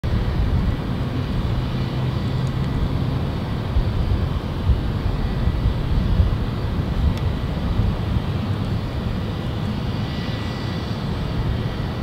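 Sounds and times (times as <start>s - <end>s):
distant jet engines rumbling: 0.0s - 12.0s
faint thin jet whine: 0.1s - 12.0s.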